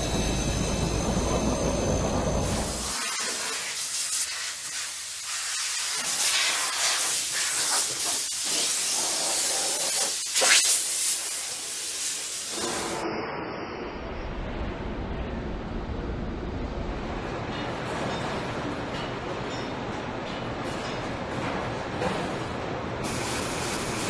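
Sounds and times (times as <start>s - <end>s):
low machine rumble: 0.0s - 2.8s
blast nozzle hissing: 2.5s - 12.9s.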